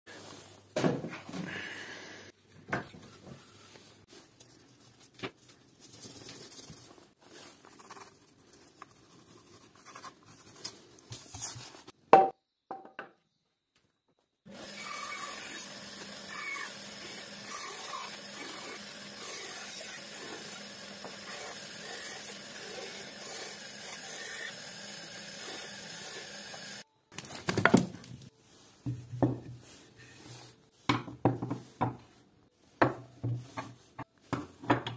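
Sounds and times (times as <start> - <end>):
band saw cutting wood: 14.5 - 26.8.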